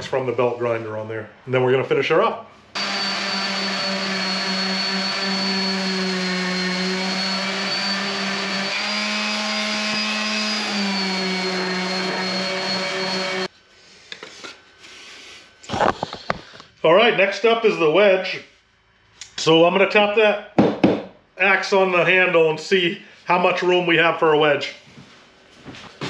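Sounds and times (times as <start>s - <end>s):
electric orbital sander whining: 2.8s - 13.5s.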